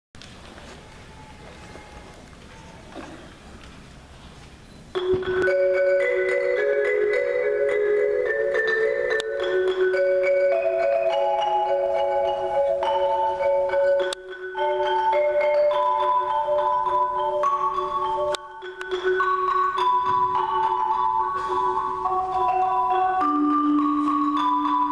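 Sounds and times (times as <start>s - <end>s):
marimbas playing interlocking patterns: 4.9s - 24.9s.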